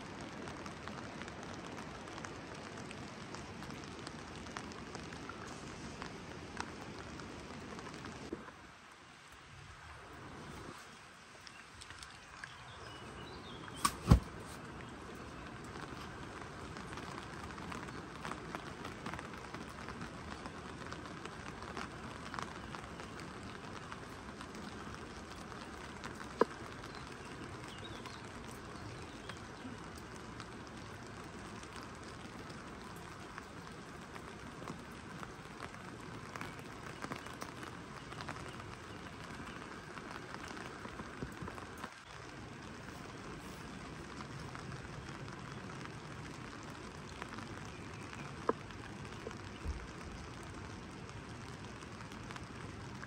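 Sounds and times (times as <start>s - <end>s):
rain falling: 0.0s - 53.0s
sharp loud click: 13.8s - 14.3s.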